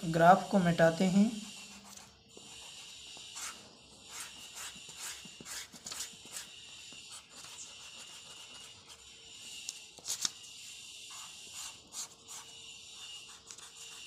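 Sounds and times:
eraser rubbing on paper: 1.1 - 9.2, 10.1 - 14.0.

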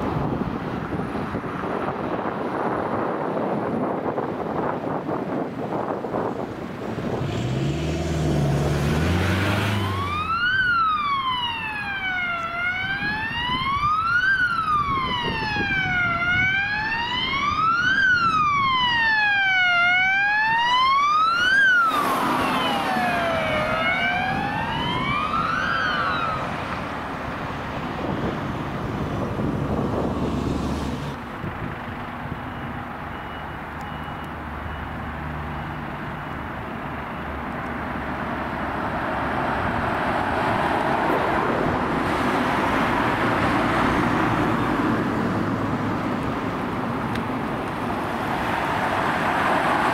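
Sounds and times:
road noise: 0.0 - 49.9
vehicle engine noise: 0.0 - 49.9
ambulance siren wailing: 8.5 - 30.2.

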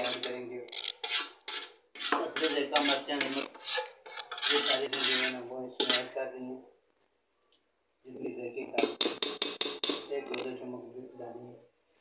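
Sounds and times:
spoon scraping a metal pot: 0.0 - 6.2.

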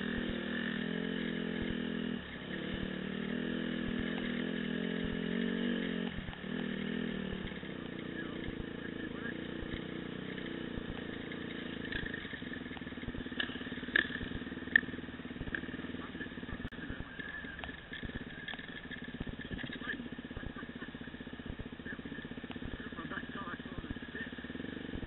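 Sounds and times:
dirt bike engine running: 0.0 - 25.0.

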